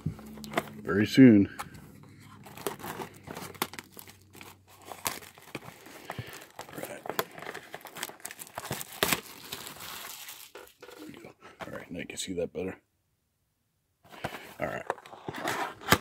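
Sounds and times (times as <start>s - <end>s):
plastic wrap crinkling and tearing: 2.3s - 11.2s.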